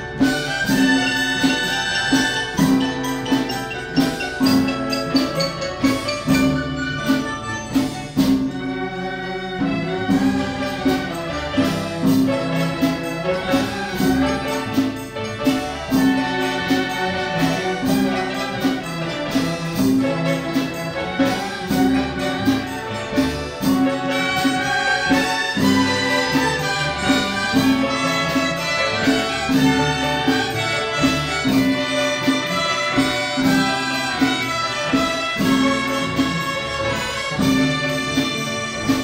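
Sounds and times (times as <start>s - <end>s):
flute melody: 0.0s - 11.5s
steady drum beat: 0.0s - 39.0s.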